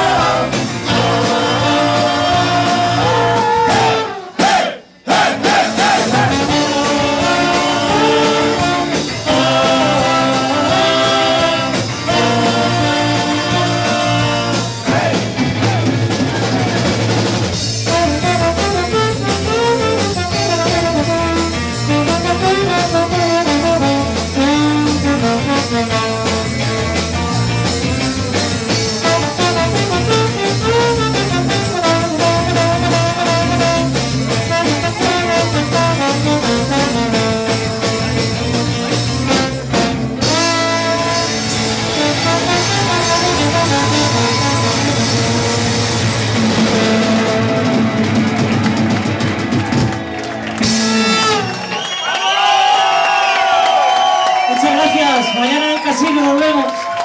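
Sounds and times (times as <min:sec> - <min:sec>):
electric guitars: 0:00.0 - 0:04.3, 0:05.7 - 0:52.1
trombone: 0:00.0 - 0:15.2, 0:17.7 - 0:27.1, 0:28.6 - 0:48.3, 0:50.6 - 0:51.7
live band playing: 0:00.0 - 0:57.0.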